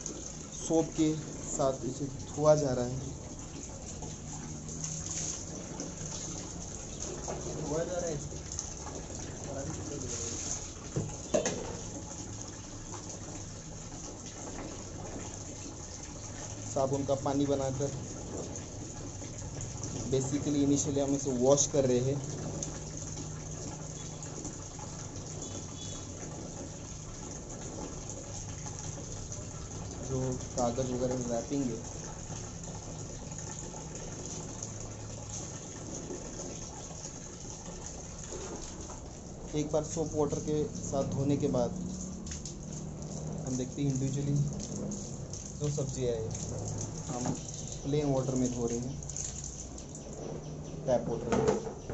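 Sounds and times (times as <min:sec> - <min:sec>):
water sloshing and splashing: 0:00.0 - 0:51.9
hands rubbing vegetables in water: 0:09.7 - 0:10.7.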